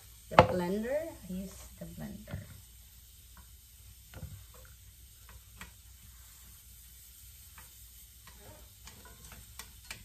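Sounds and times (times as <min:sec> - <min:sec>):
faint pan sizzle: 0:00.0 - 0:10.0
chopsticks tapping in skillet: 0:03.2 - 0:05.9, 0:07.4 - 0:10.0.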